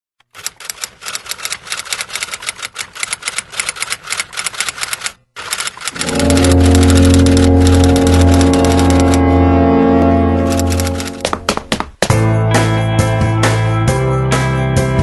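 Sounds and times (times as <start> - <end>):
music with deep bass note: 6.0 - 11.2.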